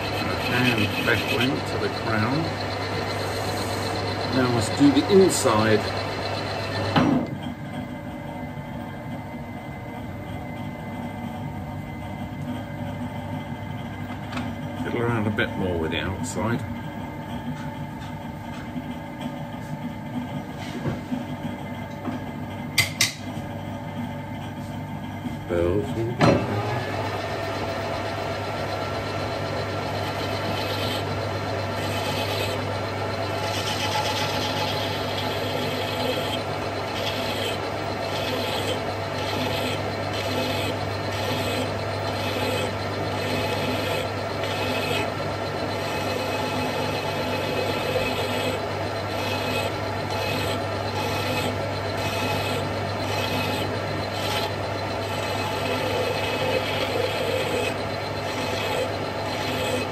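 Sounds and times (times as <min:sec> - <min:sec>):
metal lathe humming: 0:00.0 - 0:59.9
hand tool scraping metal: 0:45.8 - 0:59.9.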